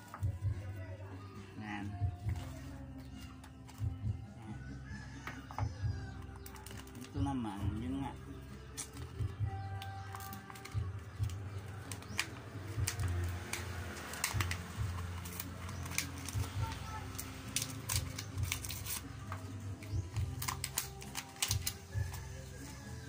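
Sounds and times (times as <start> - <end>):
plastic packaging crinkling: 9.6 - 22.6.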